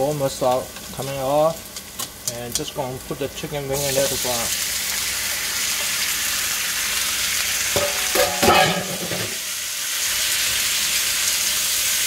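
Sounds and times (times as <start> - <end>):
chicken sizzling in hot oil: 0.0 - 12.0
ringing metal scrape: 7.8 - 9.4.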